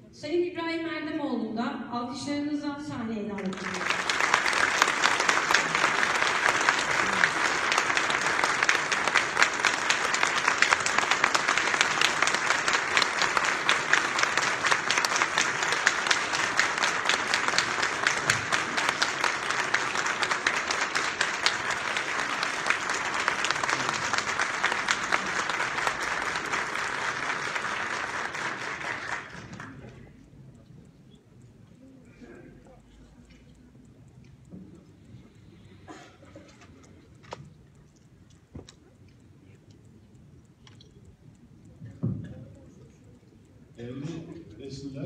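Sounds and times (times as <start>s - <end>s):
audience applauding: 3.4s - 30.1s.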